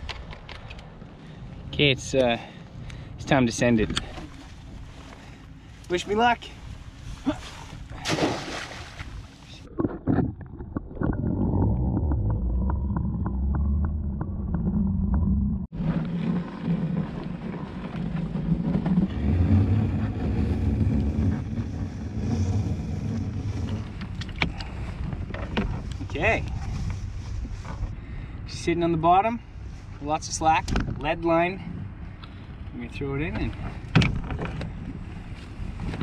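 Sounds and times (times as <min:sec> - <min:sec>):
wind rumble on microphone: 0:06.2 - 0:36.0
splash in water: 0:08.0 - 0:09.4.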